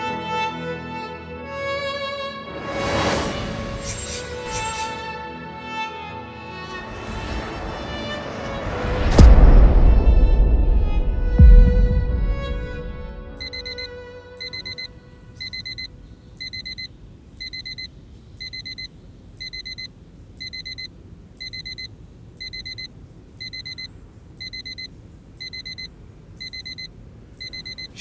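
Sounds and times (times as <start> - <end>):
digital alarm beeping: 13.4 - 28.0.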